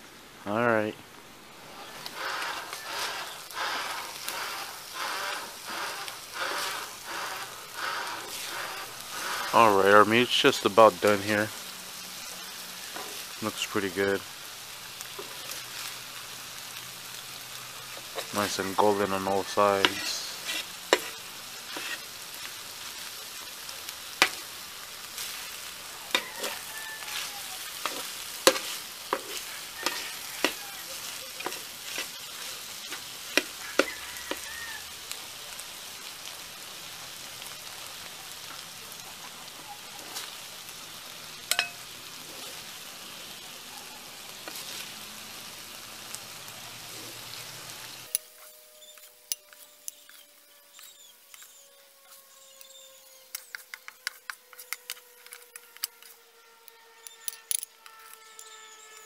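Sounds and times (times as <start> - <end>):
chicken sizzling on griddle: 0.0 - 59.0
metal spatula scraping and tapping: 12.9 - 13.2, 19.8 - 22.1, 24.2 - 24.5, 26.1 - 34.5, 41.5 - 41.8, 48.1 - 56.2.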